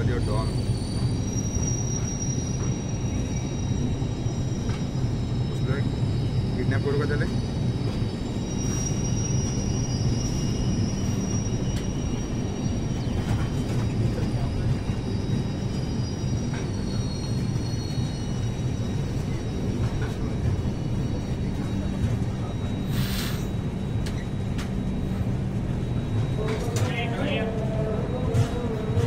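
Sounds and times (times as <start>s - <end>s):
train wheels rumbling on rails: 0.0s - 29.0s
short hiss: 22.9s - 23.5s.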